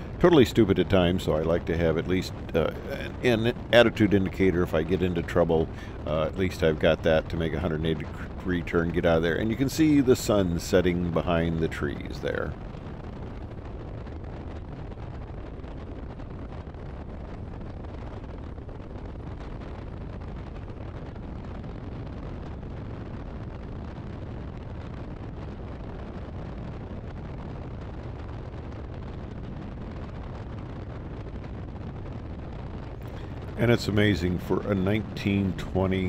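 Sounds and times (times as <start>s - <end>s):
biplane engine and propeller rumble: 0.0s - 36.0s
wind noise on microphone: 0.0s - 36.0s.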